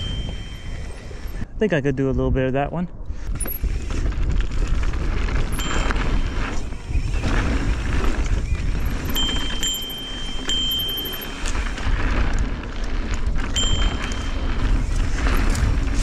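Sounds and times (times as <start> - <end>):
thin high whine: 0.0 - 1.4, 5.5 - 12.2, 13.4 - 16.0
wind buffeting on microphone: 0.0 - 16.0
bike tyres running over dirt: 3.2 - 16.0
bike knocks and rattles: 3.4 - 16.0.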